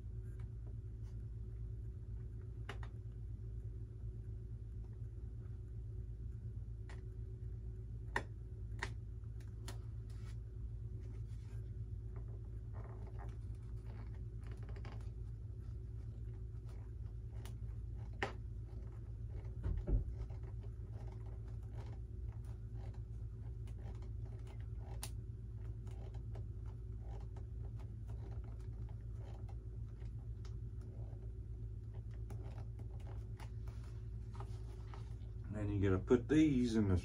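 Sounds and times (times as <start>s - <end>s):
steady low hum: 0.0s - 37.0s
hands clicking and scratching on foam: 11.0s - 35.3s.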